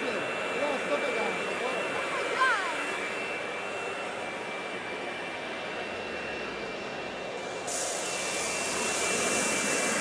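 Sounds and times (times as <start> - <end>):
smoke bomb hissing: 7.4 - 10.0.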